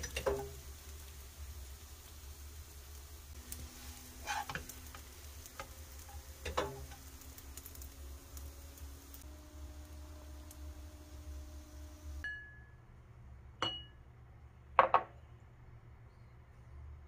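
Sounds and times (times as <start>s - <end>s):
steady low hum: 2.9s - 17.0s
spatula scraping a frying pan: 3.7s - 7.1s.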